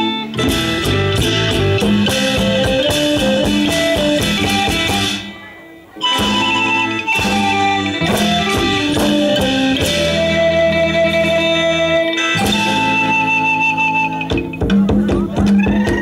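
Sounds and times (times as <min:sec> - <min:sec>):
steady bass: 0:00.0 - 0:05.3, 0:06.1 - 0:16.0
held notes: 0:00.0 - 0:16.0
plucked-string melody: 0:00.0 - 0:16.0.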